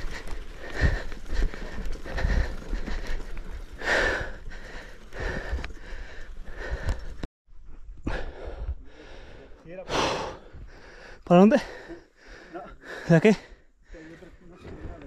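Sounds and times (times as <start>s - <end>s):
bike rattling over rough ground: 0.0s - 7.3s.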